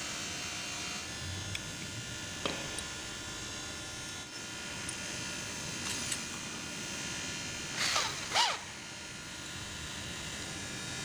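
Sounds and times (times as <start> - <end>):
cordless drill whirring: 7.7 - 8.8.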